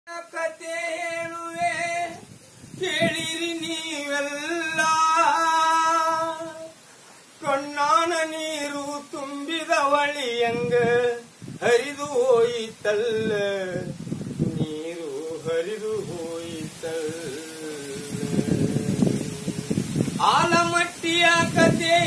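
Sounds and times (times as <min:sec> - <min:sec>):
person singing folk song: 0:00.1 - 0:22.0.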